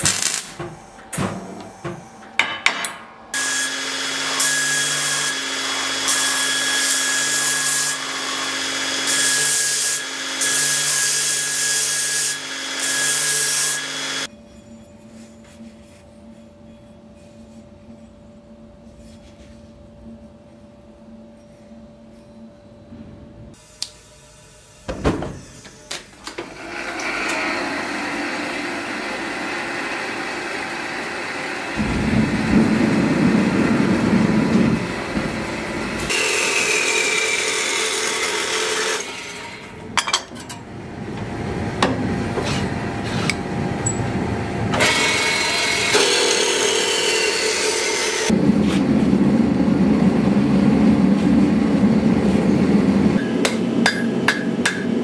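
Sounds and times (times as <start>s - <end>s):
metal-cutting saw running: 3.3s - 14.3s, 26.6s - 32.4s, 33.6s - 40.1s, 43.8s - 48.4s
gas forge burner roar: 25.0s - 55.0s.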